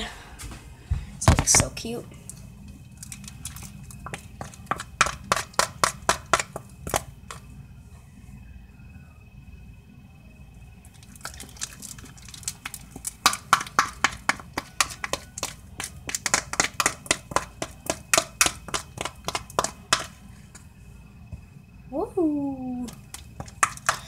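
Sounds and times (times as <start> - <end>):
slime stirred with plastic spoon: 2.9 - 7.4, 11.0 - 20.7, 22.9 - 24.0.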